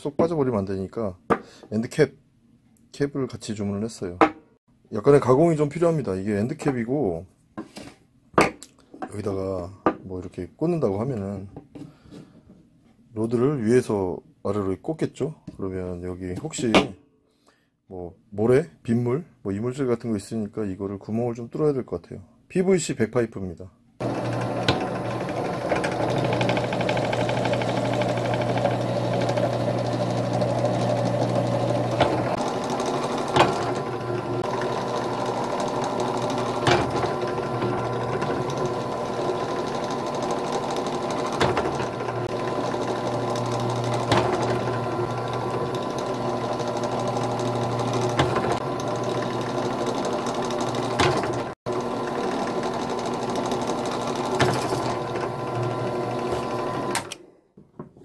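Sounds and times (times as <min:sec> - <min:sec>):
drill press drilling plastic: 0:24.0 - 0:57.2.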